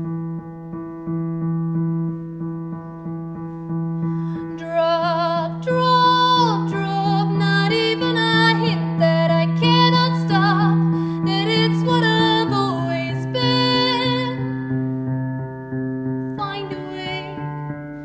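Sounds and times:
digital piano chords: 0.0s - 18.0s
woman singing: 4.4s - 14.6s, 16.4s - 17.7s.

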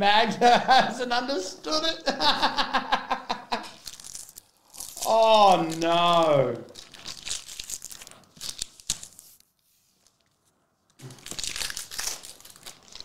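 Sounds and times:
foil wrapper crinkling and tearing: 3.6s - 13.0s.

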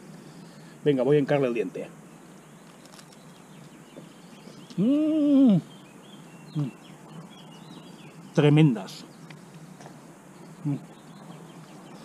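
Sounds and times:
faint bird chirps: 2.0s - 12.0s
man humming while eating: 4.7s - 5.7s, 6.5s - 6.8s, 10.6s - 10.9s.

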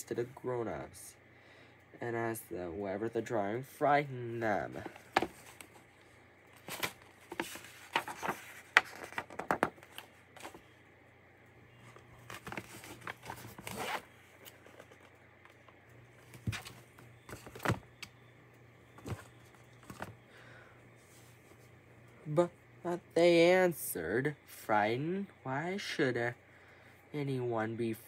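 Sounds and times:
book pages rustling: 4.7s - 10.7s, 11.8s - 18.1s, 18.9s - 20.2s.

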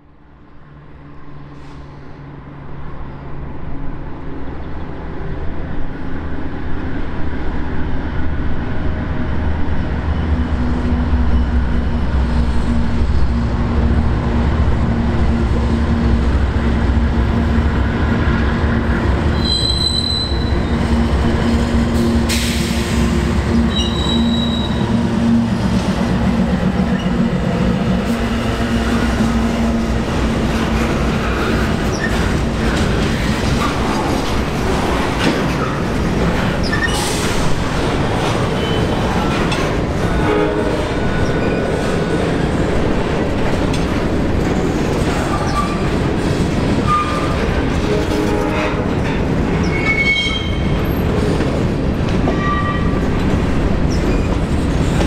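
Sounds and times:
locomotive engine hum: 0.2s - 55.0s
train wheels rumbling: 6.9s - 55.0s
high wheel squeals: 19.4s - 20.7s, 23.6s - 25.0s, 49.6s - 50.8s.

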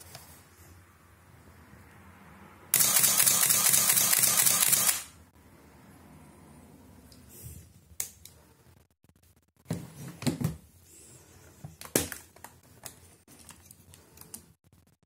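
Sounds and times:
sharp camera click: 2.7s - 5.2s.

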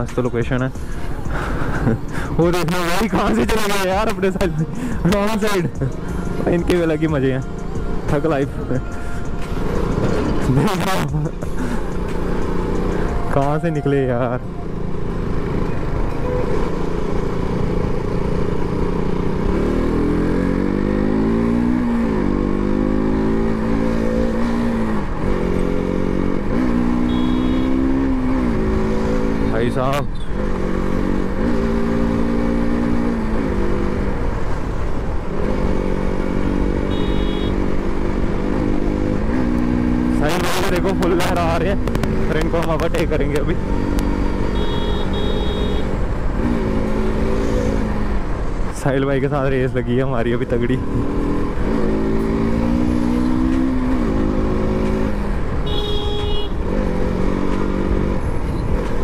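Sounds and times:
motorcycle engine revving: 0.0s - 59.0s
vehicle horn: 27.0s - 28.0s, 36.8s - 37.7s, 44.5s - 46.0s, 55.6s - 56.6s.

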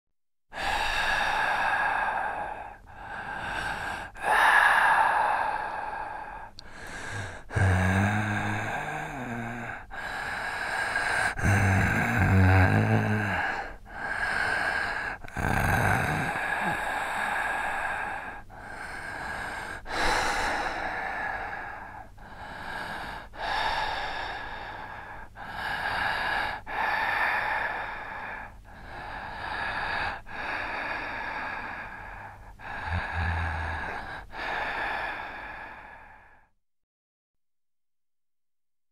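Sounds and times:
slow drawn-out breathing: 0.5s - 36.6s
low groaning voice: 11.4s - 13.6s.

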